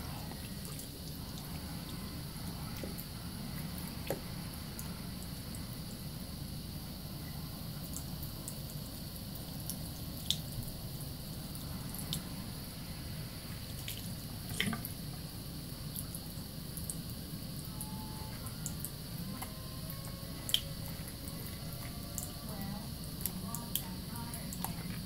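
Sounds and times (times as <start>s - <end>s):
wet hands lathering soap: 18.3s - 25.0s.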